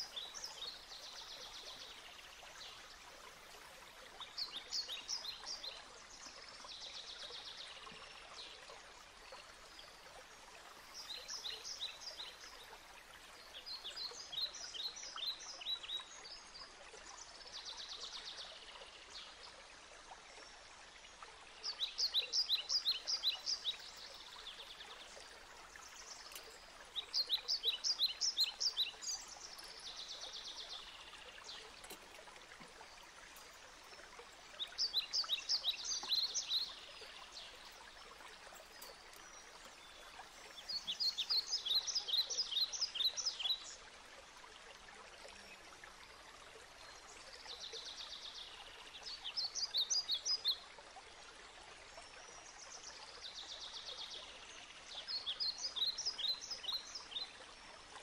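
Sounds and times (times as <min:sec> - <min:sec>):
songbird chirping and trilling: 0:21.7 - 0:43.7.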